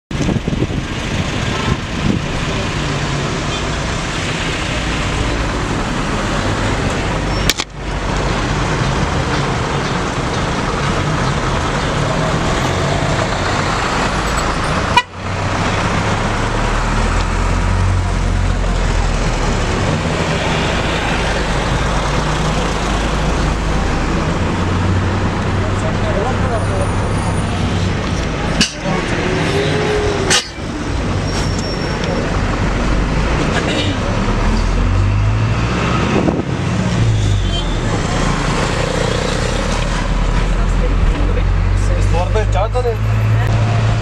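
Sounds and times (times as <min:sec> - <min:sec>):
busy road traffic: 0:00.1 - 0:44.0
car horns tooting: 0:14.7 - 0:15.2.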